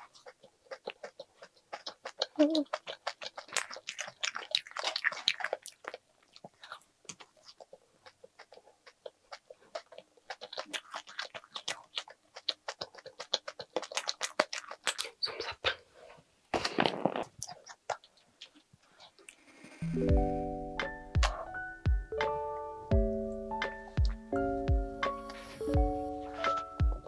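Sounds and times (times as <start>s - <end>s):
crunchy snack chewing: 0.0s - 15.8s, 16.6s - 19.2s
mouth clicks: 20.8s - 21.6s.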